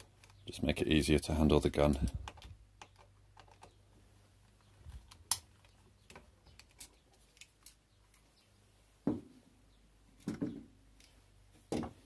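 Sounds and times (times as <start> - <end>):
metal scope mounts handled: 1.9 - 3.8, 4.9 - 8.3.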